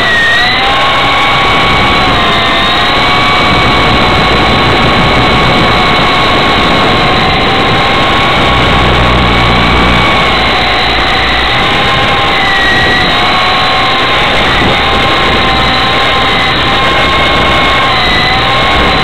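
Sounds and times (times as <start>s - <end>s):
rc helicopter motors whining: 0.0s - 19.0s.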